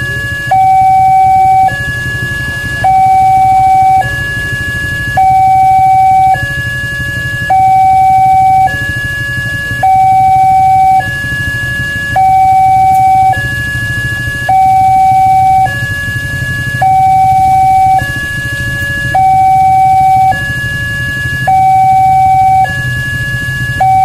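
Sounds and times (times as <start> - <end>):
level crossing two-tone alarm: 0.0 - 24.0.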